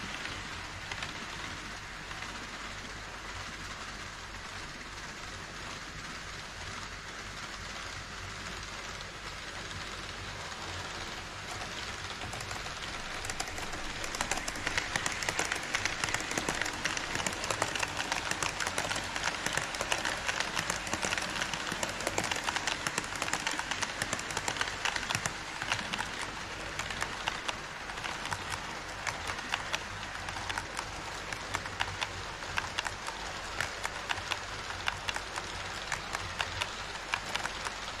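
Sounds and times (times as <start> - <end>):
model train wheels rushing: 0.0 - 38.0
wheels clicking over rail joints: 8.9 - 38.0.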